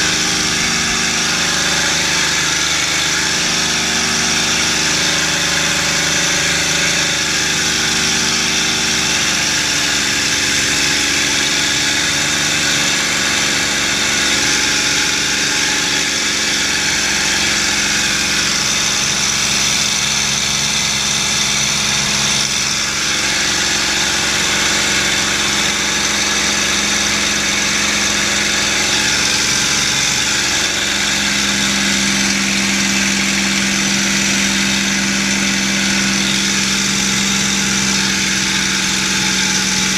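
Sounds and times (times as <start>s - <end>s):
propeller plane engine at high power: 0.0s - 39.9s.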